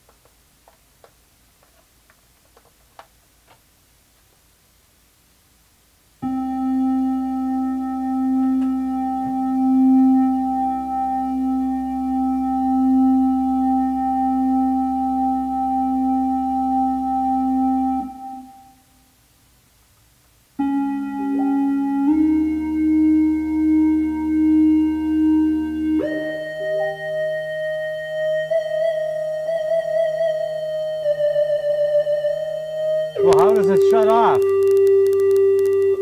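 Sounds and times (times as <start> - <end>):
electronic keyboard chords: 6.2 - 19.0, 20.6 - 36.0.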